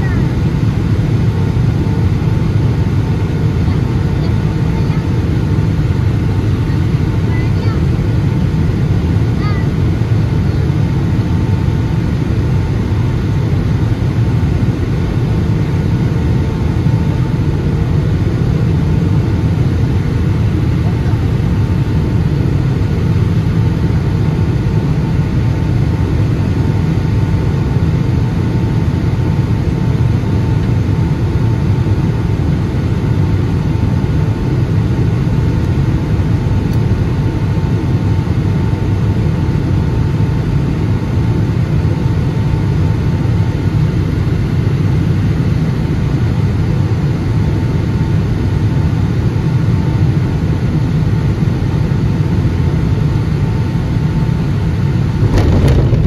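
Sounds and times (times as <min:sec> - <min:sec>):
faint steady whine: 0:49.6 - 0:56.0
jet engines roaring: 0:54.1 - 0:56.0
rushing air: 0:55.1 - 0:56.0.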